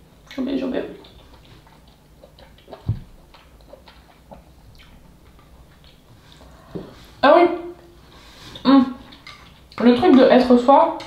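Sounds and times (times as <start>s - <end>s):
chewing clicks: 1.0s - 6.6s.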